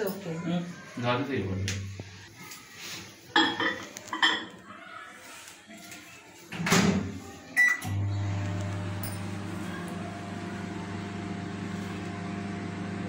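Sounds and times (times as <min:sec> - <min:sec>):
keypad beep with clicks: 0:07.6 - 0:07.9
microwave oven humming: 0:07.8 - 0:13.0.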